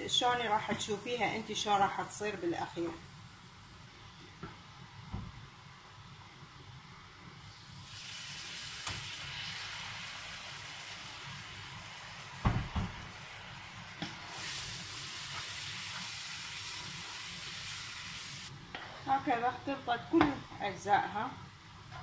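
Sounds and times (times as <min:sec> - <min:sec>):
filling sizzling in frying pan: 0:00.0 - 0:04.8, 0:06.7 - 0:22.0.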